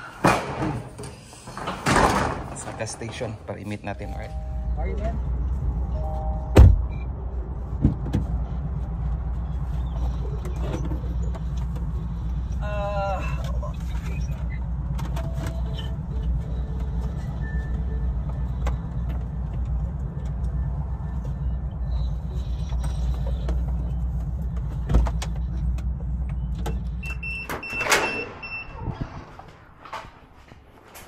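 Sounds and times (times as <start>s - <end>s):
car engine and road noise: 2.8s - 31.0s.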